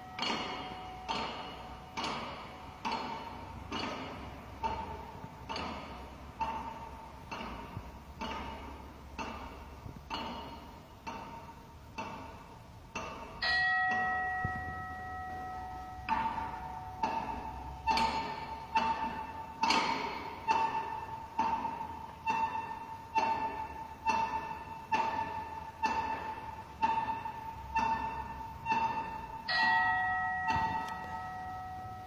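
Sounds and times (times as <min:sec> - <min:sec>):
long ringing chime: 0:13.4 - 0:17.8, 0:29.5 - 0:32.0
metallic bell-like hits: 0:13.4 - 0:19.4, 0:28.8 - 0:32.0.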